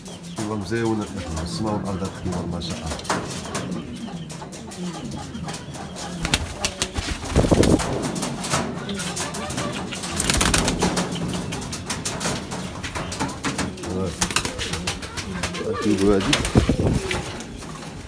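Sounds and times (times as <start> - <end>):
pigeons cooing: 0.0 - 18.0
rustling bursts: 6.2 - 8.6.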